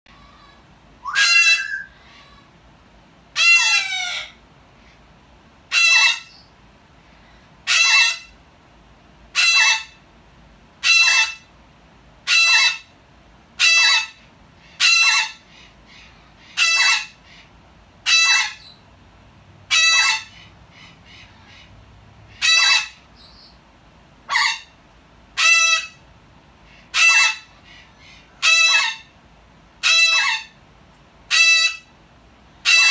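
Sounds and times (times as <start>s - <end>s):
parrots squawking harshly: 0.1s - 2.5s, 3.4s - 4.4s, 5.7s - 6.4s, 7.6s - 8.4s, 9.3s - 10.0s, 10.8s - 11.5s, 12.3s - 12.9s, 13.6s - 18.8s, 19.7s - 21.7s, 22.3s - 23.5s, 24.3s - 24.7s, 25.4s - 26.0s, 26.8s - 29.2s, 29.8s - 30.6s, 31.3s - 31.9s, 32.6s - 32.9s.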